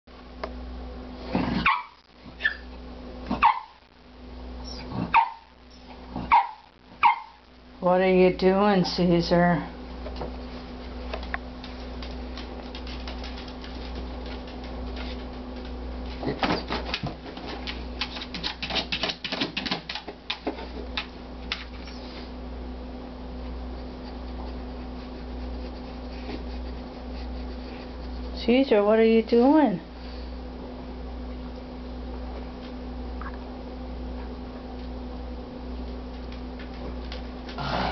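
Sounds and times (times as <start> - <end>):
dog barking: 1.6 - 2.6, 3.3 - 3.8, 5.1 - 5.5, 6.2 - 7.4
dog claws clicking and scratching: 11.2 - 21.9.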